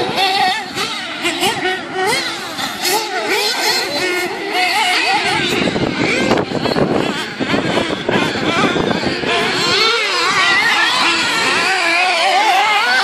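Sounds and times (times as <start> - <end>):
rc buggy motors buzzing: 0.0 - 13.0.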